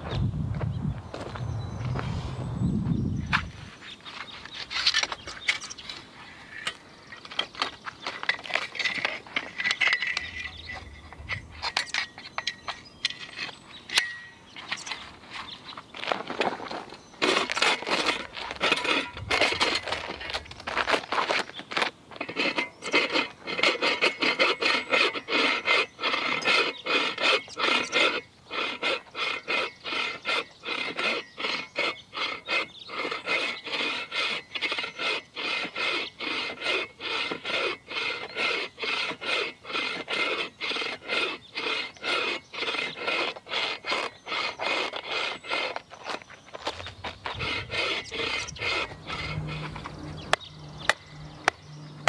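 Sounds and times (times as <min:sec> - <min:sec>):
saw rasping through log: 0:06.4 - 0:15.2, 0:16.1 - 0:52.0.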